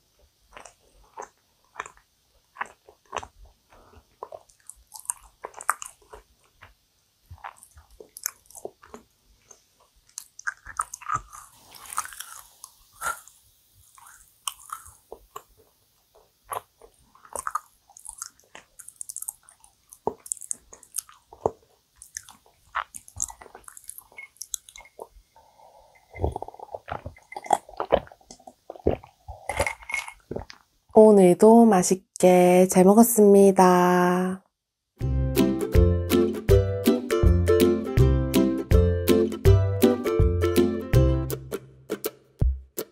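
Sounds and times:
chewing sticky cookie: 0.0 - 30.7
person gulping a drink: 16.2 - 30.7.

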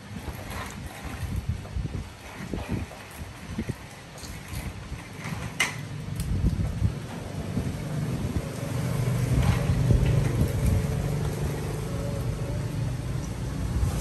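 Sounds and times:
vehicle engine humming: 6.0 - 14.0.

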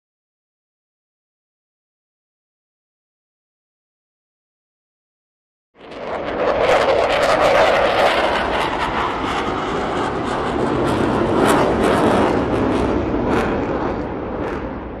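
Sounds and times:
jet engine roar with crackle: 5.8 - 15.0.

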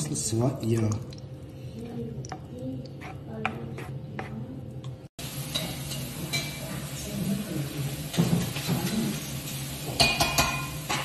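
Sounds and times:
wooden spoon stirring in pan: 1.8 - 4.6.

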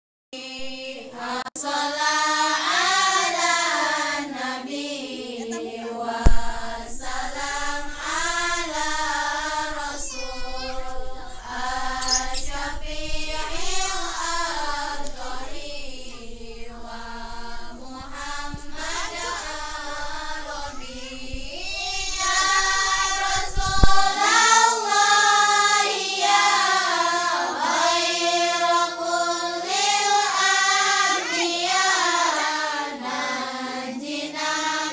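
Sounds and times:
girls chanting devotional song: 0.4 - 34.9
low rumble: 6.3 - 24.1.

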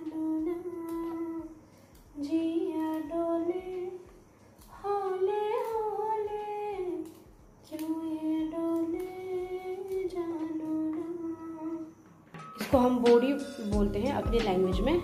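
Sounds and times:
woman humming: 4.8 - 12.1.

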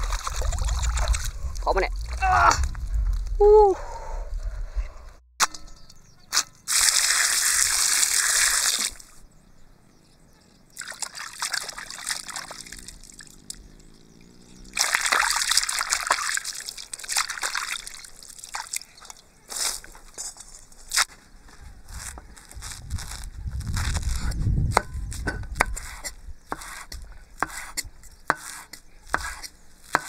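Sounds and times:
water sloshing in a metal basin: 14.8 - 19.2.

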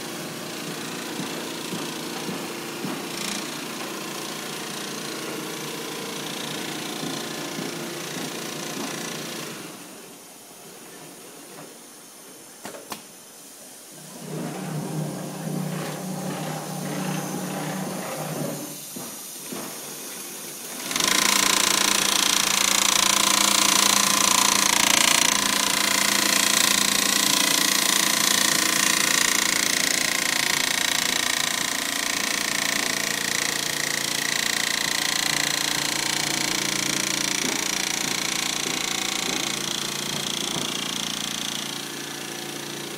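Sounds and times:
quilting machine motor hum: 14.0 - 19.1, 20.6 - 42.9
sewing needle rattling chatter: 20.8 - 41.7.

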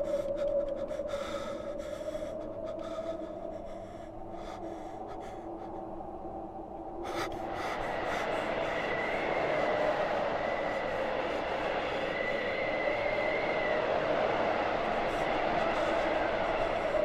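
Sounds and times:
low drone: 0.0 - 17.0
rushing noise with high tone: 7.1 - 17.0.

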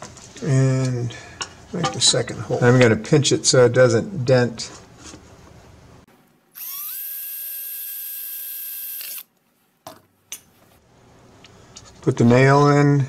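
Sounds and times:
cordless drill drilling metal can: 6.6 - 9.3.

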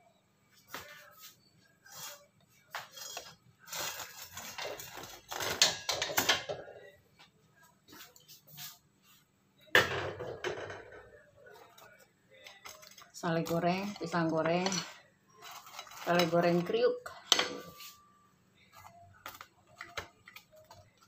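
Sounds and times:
utensil scraping a pan: 1.8 - 6.3, 12.7 - 18.0.

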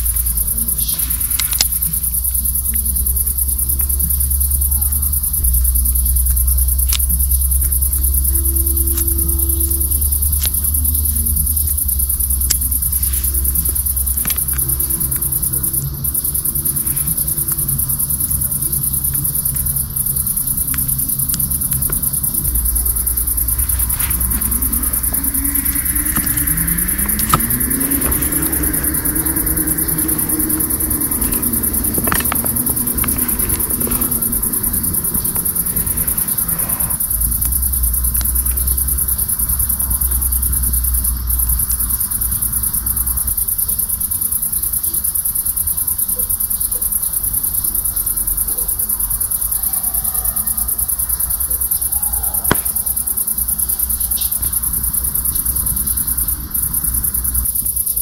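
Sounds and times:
crickets chirring: 0.0 - 58.0
low rumble: 3.2 - 38.0
low hum rising in pitch: 5.3 - 36.6.

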